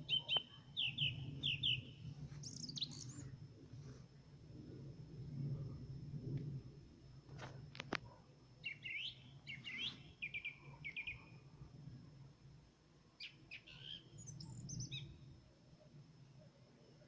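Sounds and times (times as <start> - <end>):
nightingale singing: 0.0 - 3.3, 8.6 - 11.4, 13.2 - 15.2
steady low rumble: 0.7 - 8.6, 11.4 - 13.1.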